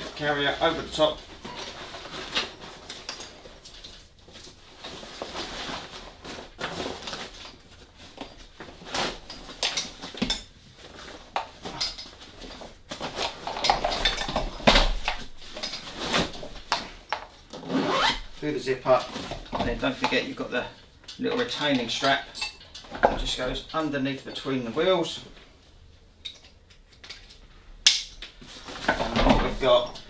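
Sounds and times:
fabric cover rustling: 0.0s - 20.6s
wagon frame clicks and clinks: 13.1s - 17.3s.

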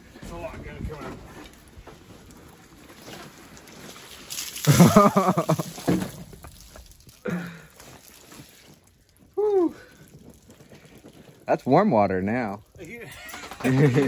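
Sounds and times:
water pouring and splashing: 0.3s - 14.0s
short voice sounds: 9.4s - 9.8s.

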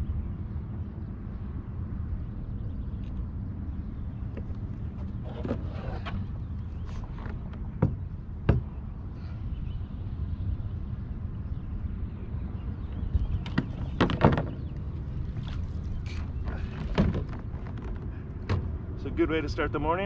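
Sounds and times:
clicks and knocks of tackle: 16.1s - 18.6s.

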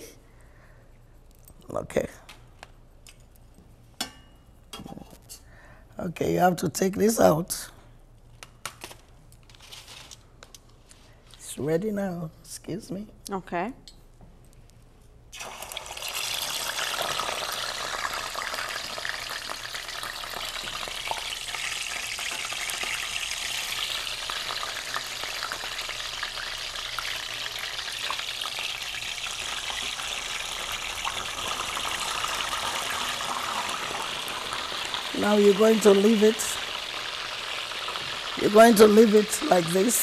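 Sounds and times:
fish sizzling in hot oil: 15.4s - 40.0s.

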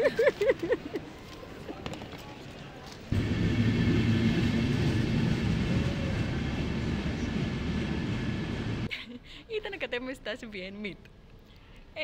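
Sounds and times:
train rumbling: 3.1s - 8.9s.

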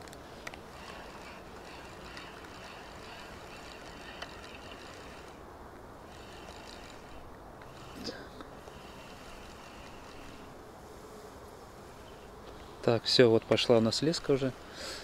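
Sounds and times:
fishing reel whirring: 0.4s - 5.4s, 6.0s - 10.6s.

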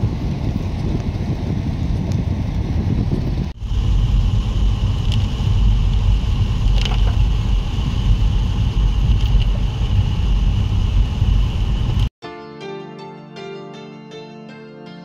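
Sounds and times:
road and wind noise in car: 0.0s - 12.1s.

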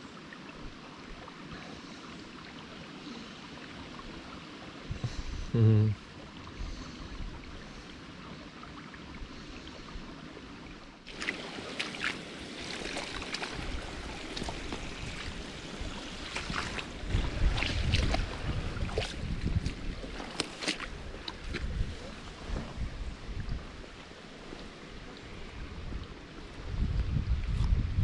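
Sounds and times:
flowing river water: 0.0s - 28.0s
wind buffeting microphone: 13.5s - 23.8s, 25.4s - 28.0s.

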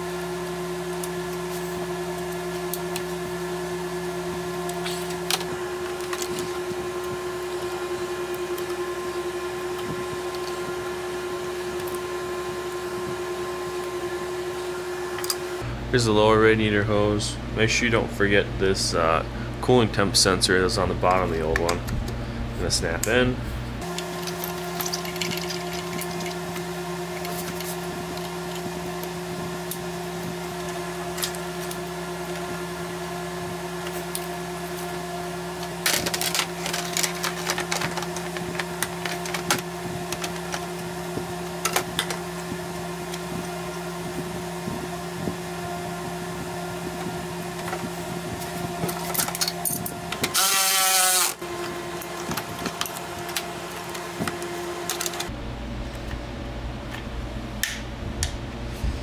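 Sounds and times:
background hum: 0.0s - 59.0s
plastic parts clicking and snapping: 35.8s - 40.6s
cordless drill running: 50.2s - 52.7s.

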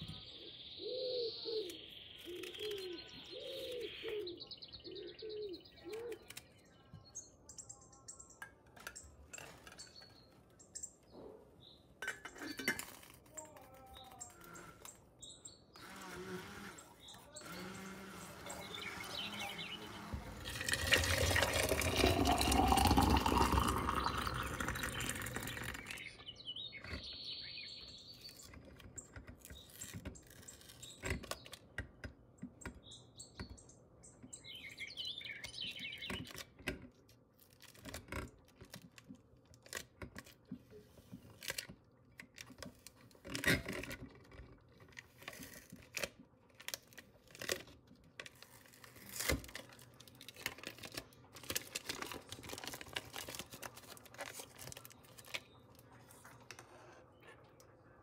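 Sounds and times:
small water sounds: 19.6s - 26.2s.

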